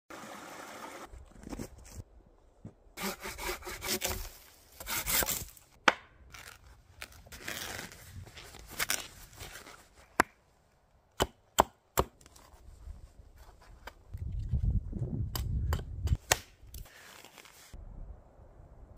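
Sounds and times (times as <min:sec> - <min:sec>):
hand saw cutting log: 0:03.0 - 0:05.5.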